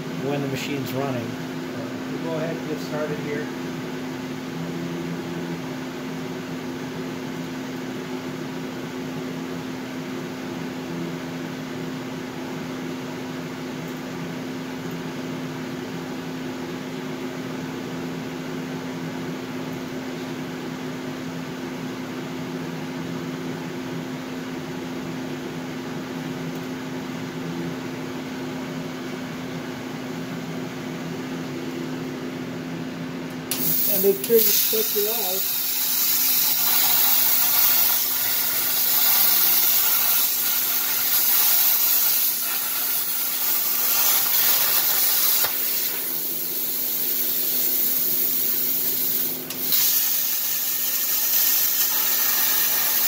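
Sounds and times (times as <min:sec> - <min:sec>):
electric machine hum: 0:25.4 - 0:53.0.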